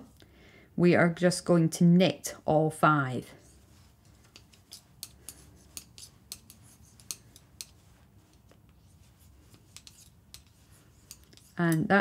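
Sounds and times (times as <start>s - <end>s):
knitting needles clicking: 4.0s - 8.8s, 9.4s - 11.9s.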